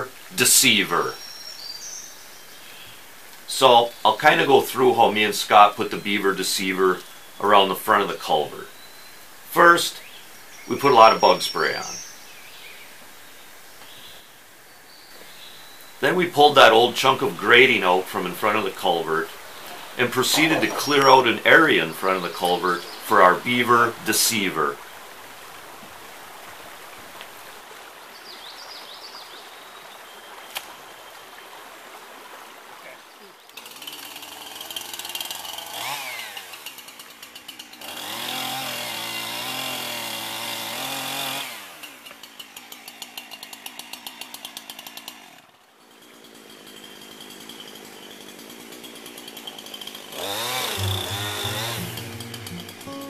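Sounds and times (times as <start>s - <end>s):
chainsaw revving and cutting log: 19.8s - 21.3s, 33.6s - 53.0s.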